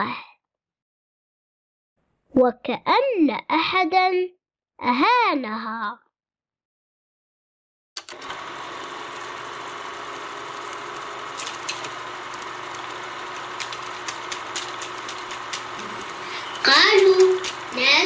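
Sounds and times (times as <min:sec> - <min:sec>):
film projector whirring: 0:08.0 - 0:18.0
clicks and crackles: 0:10.7 - 0:16.4.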